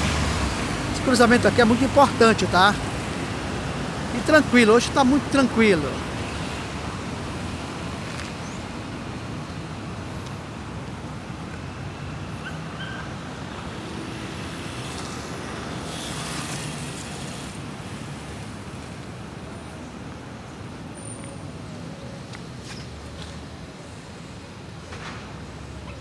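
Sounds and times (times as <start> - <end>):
cars going by: 0.0 - 26.0.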